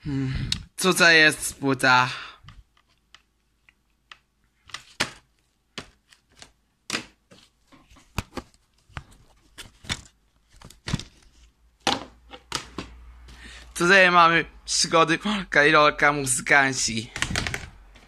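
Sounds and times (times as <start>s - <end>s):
plastic cases clicking and snapping: 11.9s - 13.0s, 17.1s - 18.0s.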